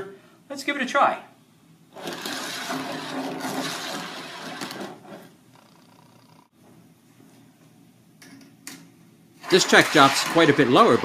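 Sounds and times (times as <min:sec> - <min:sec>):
steel balls rolling on tracks: 0:02.0 - 0:05.3.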